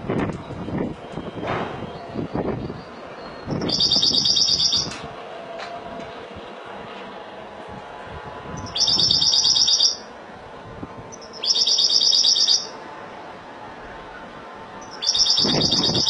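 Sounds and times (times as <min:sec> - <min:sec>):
finch singing trilled phrases: 0:08.6 - 0:10.0, 0:11.2 - 0:12.7, 0:14.8 - 0:16.0.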